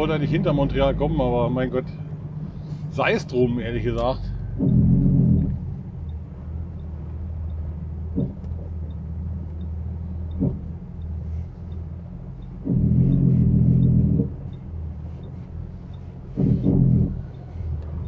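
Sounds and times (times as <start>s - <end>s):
road noise: 0.0s - 18.0s
truck diesel engine rumble: 0.0s - 18.0s
short knocks: 3.9s - 5.8s, 8.1s - 8.8s, 10.3s - 10.8s, 12.4s - 14.4s, 16.3s - 17.5s.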